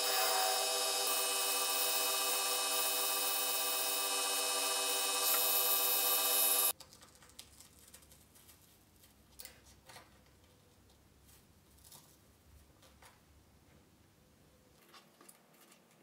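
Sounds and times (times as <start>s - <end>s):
lathe motor whine: 0.0s - 6.7s
faint clicks and scratches: 6.8s - 12.2s, 14.7s - 16.0s.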